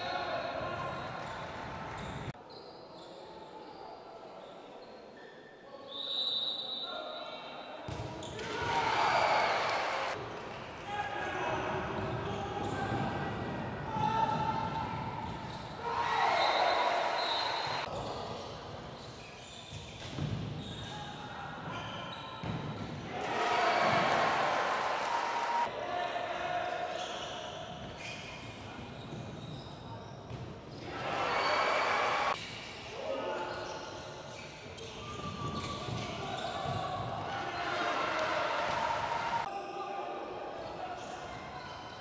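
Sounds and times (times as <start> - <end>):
players' voices: 5.8 - 19.1, 20.6 - 42.0
referee's whistle: 5.9 - 7.6, 15.5 - 17.9
shoes squeaking: 18.9 - 21.0, 33.6 - 37.0.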